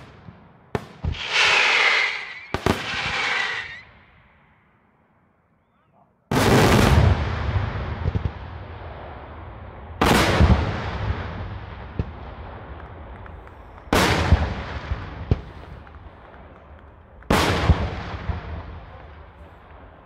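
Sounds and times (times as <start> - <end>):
firework shell booms echoing: 0.0 - 4.2, 6.3 - 20.0
small firework cracks: 10.0 - 20.0.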